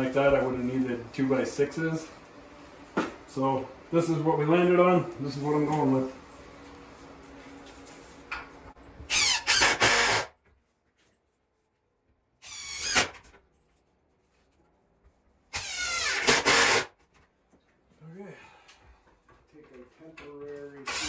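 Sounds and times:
power drill driving screws: 9.1 - 10.3, 12.4 - 13.2, 15.5 - 16.9.

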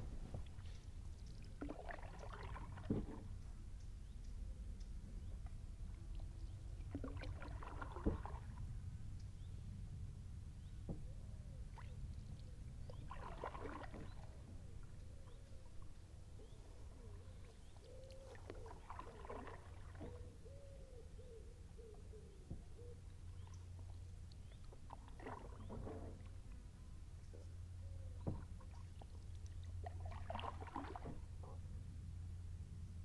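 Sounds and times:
paddle splashing in water: 0.0 - 3.4, 6.8 - 8.6, 12.8 - 14.5, 15.7 - 20.3, 24.3 - 26.6, 28.2 - 31.6
bird calling: 10.6 - 19.3, 19.9 - 23.8.

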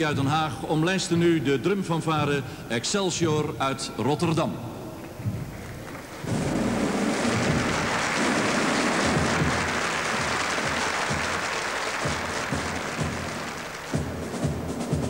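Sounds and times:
slow low drum beats: 5.1 - 15.0
audience applause: 5.5 - 15.0.

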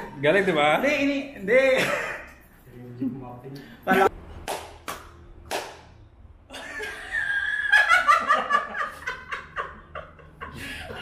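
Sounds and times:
people laughing: 6.5 - 11.0.

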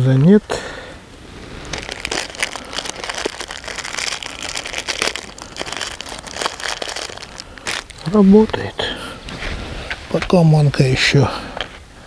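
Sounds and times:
packet crinkling: 1.4 - 8.6.

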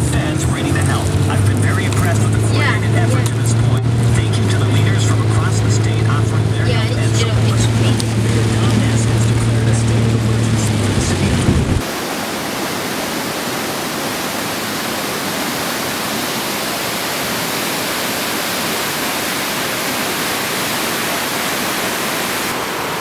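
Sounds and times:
rain ticking on windshield: 0.0 - 11.9
car engine hum: 0.0 - 16.8
floodwater rushing: 0.0 - 23.0.

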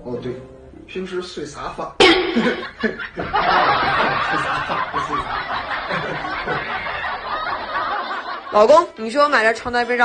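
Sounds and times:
canned audience laughter: 2.2 - 8.9.

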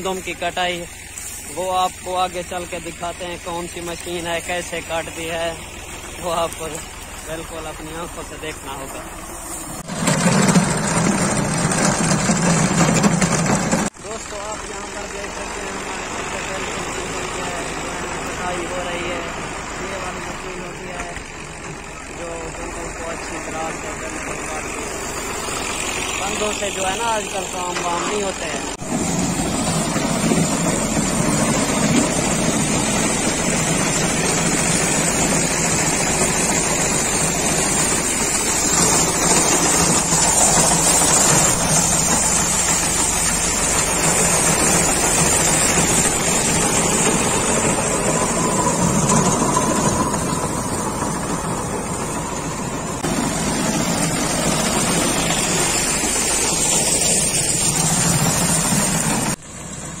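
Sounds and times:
tractor diesel engine running: 0.0 - 60.0.

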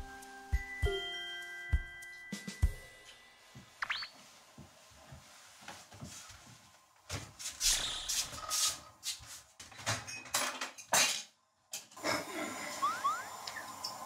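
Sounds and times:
bedding rustling: 3.4 - 9.6.

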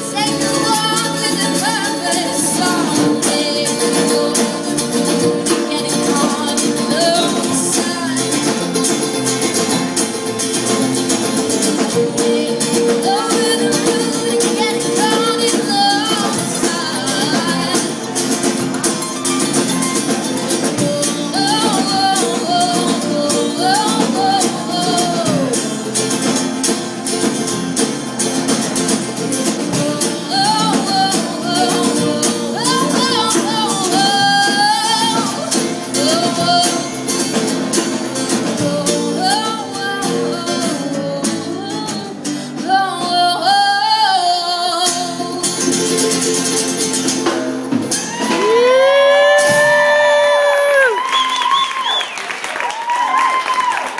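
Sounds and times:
woman singing: 0.0 - 9.9, 11.0 - 19.5, 20.3 - 26.4, 29.2 - 46.8
mandolin: 0.0 - 51.6
strummed acoustic guitars: 0.0 - 51.9
light drums: 45.8 - 51.0.

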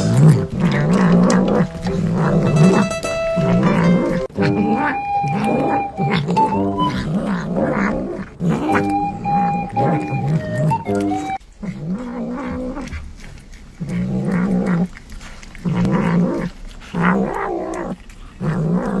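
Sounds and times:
cat growling and yowling: 0.0 - 2.8, 3.4 - 13.0, 13.8 - 14.9.

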